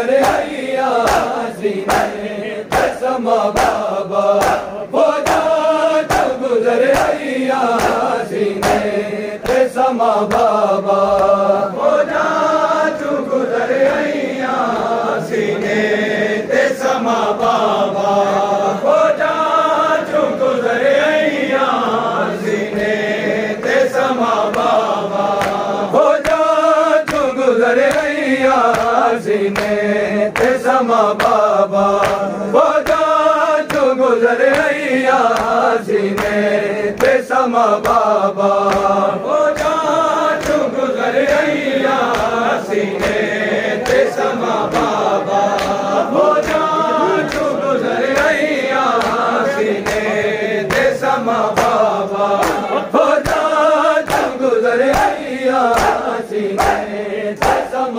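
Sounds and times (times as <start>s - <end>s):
men chanting a lament: 0.0s - 57.9s
hands striking chests: 3.6s - 7.2s, 55.7s - 56.0s, 57.4s - 57.7s.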